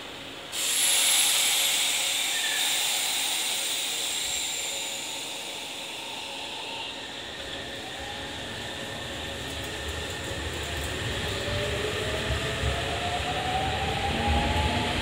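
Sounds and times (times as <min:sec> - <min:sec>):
loud hiss of compressed air: 0:00.5 - 0:07.8.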